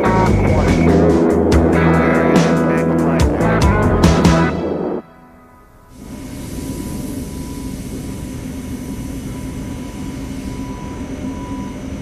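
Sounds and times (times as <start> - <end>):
low mechanical hum: 5.4 - 12.0.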